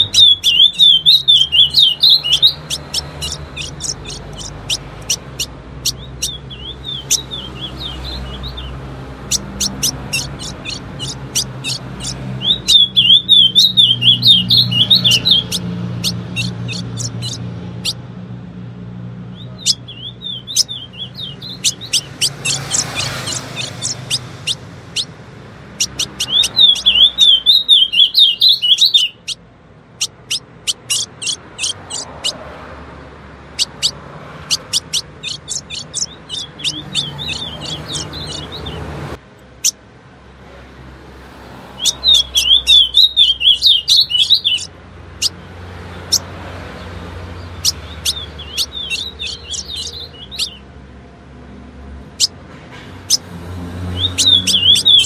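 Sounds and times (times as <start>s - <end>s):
bird chip notes: 0.0s - 18.0s, 19.6s - 25.1s, 33.6s - 38.8s, 47.6s - 50.6s
bird fast warbling: 0.0s - 18.0s, 19.4s - 29.4s, 30.0s - 32.4s, 33.5s - 38.8s, 41.8s - 45.4s, 47.4s - 50.6s, 53.9s - 55.0s.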